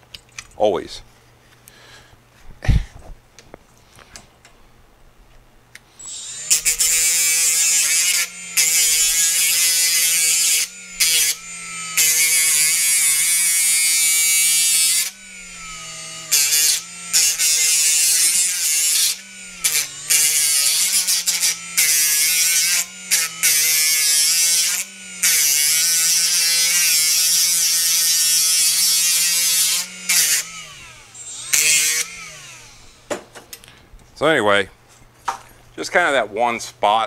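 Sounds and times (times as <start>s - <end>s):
die grinder grinding steel: 6.0s - 33.2s.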